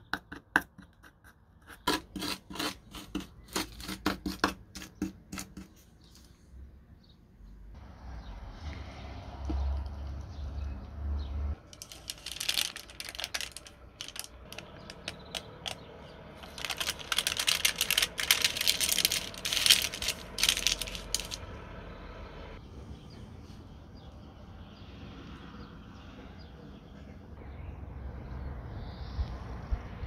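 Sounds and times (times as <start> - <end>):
baking paper crinkling: 11.6 - 21.4.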